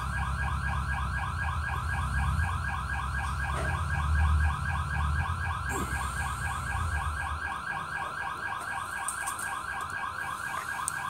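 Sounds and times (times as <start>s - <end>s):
electronic alarm warbling: 0.0s - 11.0s.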